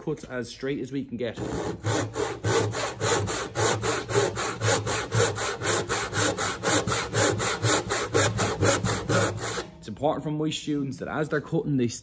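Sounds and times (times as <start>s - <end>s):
hand saw cutting wood: 1.3s - 9.8s.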